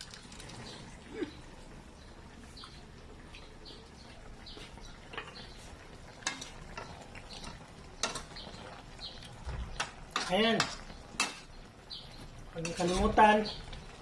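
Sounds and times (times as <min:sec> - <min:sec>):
metal spatula scraping a wok: 0:12.6 - 0:13.4.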